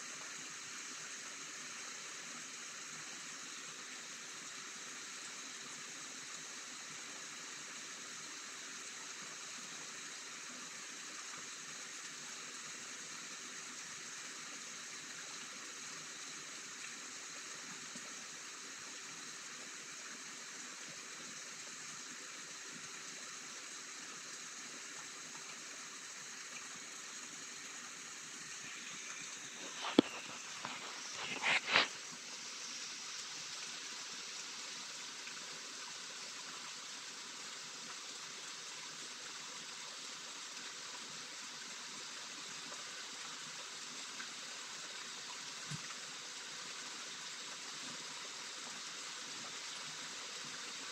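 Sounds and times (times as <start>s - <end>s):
rain hissing: 28.4s - 33.4s.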